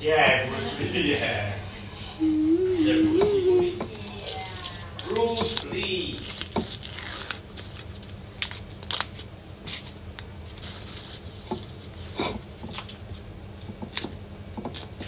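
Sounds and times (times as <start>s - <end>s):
paper packaging crinkling: 4.3s - 11.3s.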